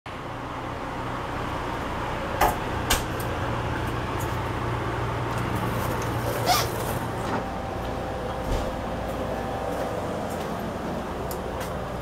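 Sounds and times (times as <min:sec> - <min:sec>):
train car low hum: 0:00.1 - 0:12.0.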